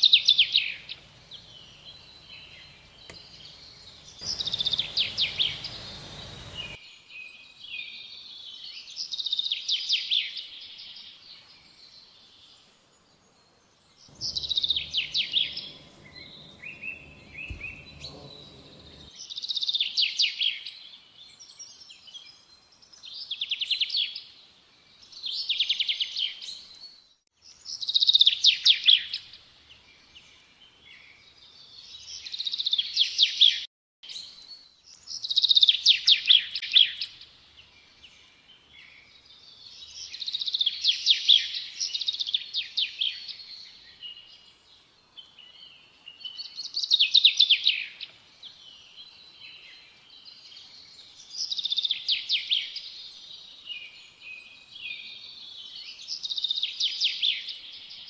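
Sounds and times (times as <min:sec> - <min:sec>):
songbird trilling: 0:00.0 - 0:06.8, 0:14.1 - 0:19.1
low rumble: 0:00.4 - 0:06.8, 0:14.1 - 0:19.1.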